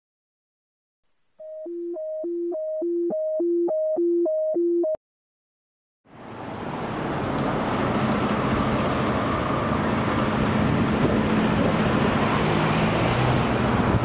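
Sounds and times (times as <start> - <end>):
two-tone siren: 1.4 - 5.0.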